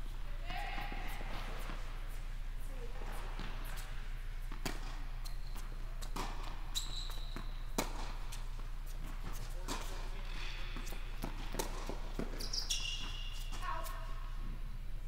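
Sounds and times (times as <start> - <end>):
tennis racquet hits and bounces: 4.4 - 6.6, 7.3 - 10.0, 10.8 - 14.0
shoe squeak: 5.2 - 5.8, 6.7 - 8.4, 12.2 - 14.0.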